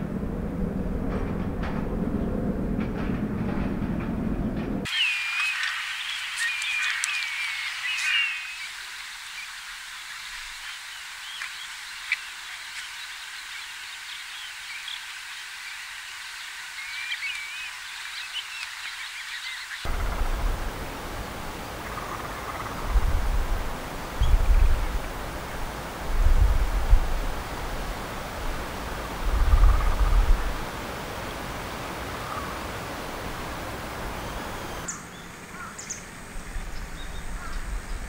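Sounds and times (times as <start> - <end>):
wind gusts on microphone: 0.0 - 4.9, 19.9 - 34.9
bird piping calls: 4.9 - 9.6, 10.5 - 20.4, 29.0 - 30.6, 31.2 - 38.0.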